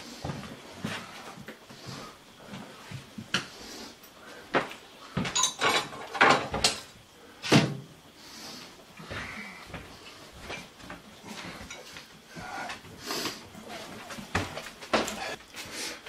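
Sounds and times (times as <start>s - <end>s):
kitchen drawers and utensils clattering: 5.2s - 7.8s.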